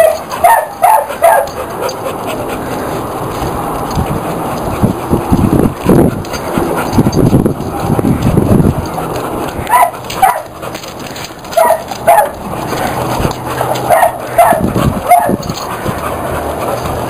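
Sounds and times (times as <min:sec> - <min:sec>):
dog barking in high yips: 0:00.0 - 0:01.7, 0:09.7 - 0:10.5, 0:11.5 - 0:12.4, 0:13.9 - 0:15.5.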